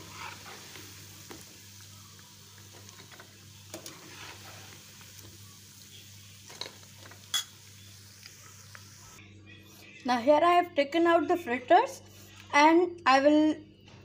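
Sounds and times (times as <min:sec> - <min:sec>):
fritters sizzling in oil: 0:00.0 - 0:09.2.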